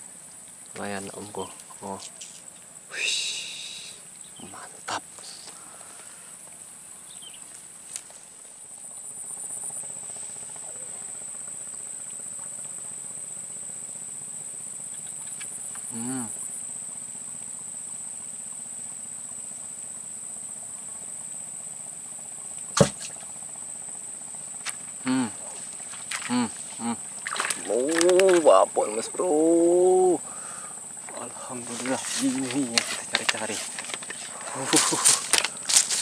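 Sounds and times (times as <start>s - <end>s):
insects chirring: 0.0s - 36.0s
sharp knock: 22.7s - 23.2s.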